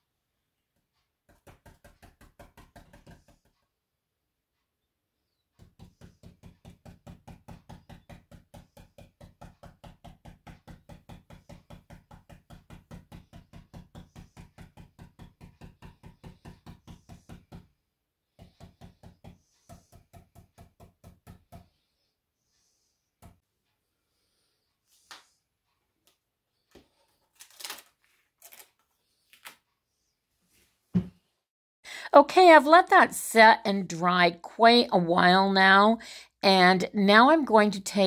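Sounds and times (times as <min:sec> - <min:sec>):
stencil brush tapping on wood: 0:01.0 - 0:03.7, 0:05.6 - 0:17.8, 0:18.4 - 0:21.8.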